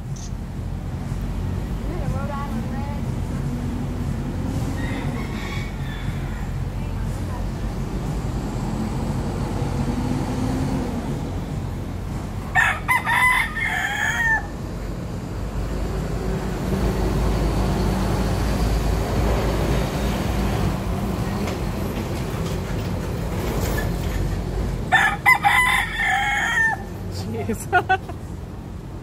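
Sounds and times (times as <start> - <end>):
rooster crowing: 4.6 - 6.9, 12.5 - 14.8, 24.9 - 27.0.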